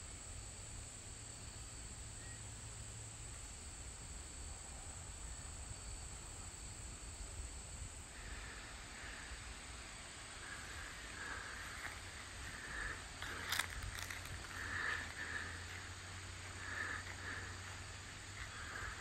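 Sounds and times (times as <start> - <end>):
insect trilling: 10.2 - 19.0.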